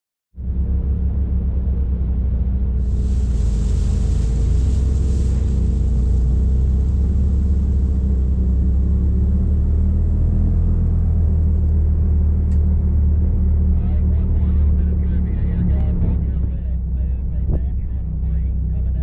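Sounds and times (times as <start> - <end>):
utility vehicle engine running: 0.4 - 19.0
water spray hissing: 2.8 - 8.7.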